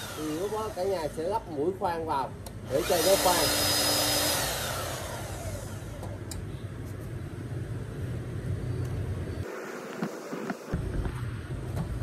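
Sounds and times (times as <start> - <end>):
rotary hammer motor winding down: 0.0 - 1.4, 2.7 - 6.2.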